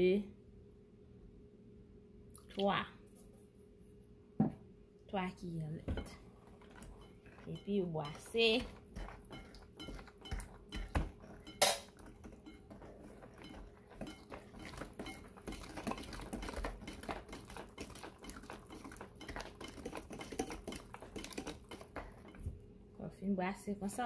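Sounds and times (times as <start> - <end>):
electric hand mixer beating batter: 6.6 - 22.2.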